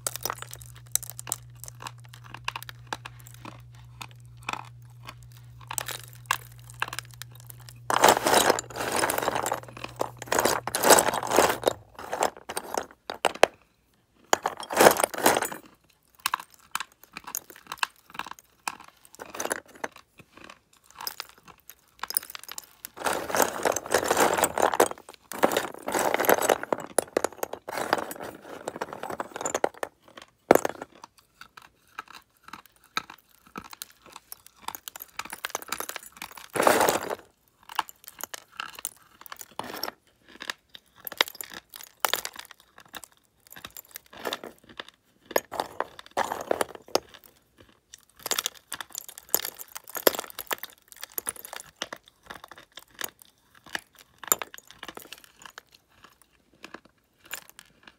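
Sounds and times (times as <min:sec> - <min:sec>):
gritty crunching of chewing: 0:00.0 - 0:57.9.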